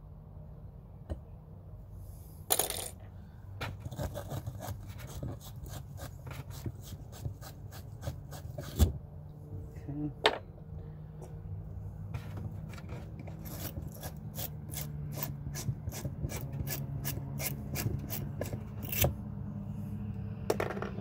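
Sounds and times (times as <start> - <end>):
deburring tool scraping pipe: 3.7 - 8.9, 12.2 - 19.1.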